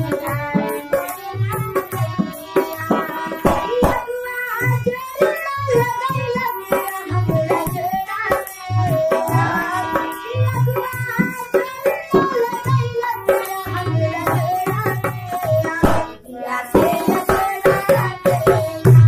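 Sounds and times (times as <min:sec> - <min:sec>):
harmonium chords: 0:00.0 - 0:05.5, 0:06.4 - 0:14.3
hand drum beating rhythm: 0:00.0 - 0:19.0
woman singing: 0:00.0 - 0:19.0.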